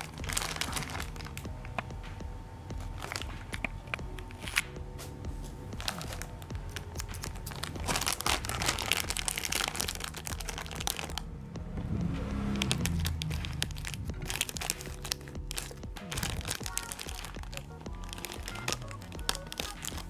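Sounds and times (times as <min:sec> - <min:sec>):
plastic bag crinkling: 0:00.0 - 0:01.8, 0:02.8 - 0:04.8, 0:05.8 - 0:11.3, 0:12.5 - 0:20.0
scissors cutting plastic: 0:05.8 - 0:11.2, 0:12.6 - 0:20.0.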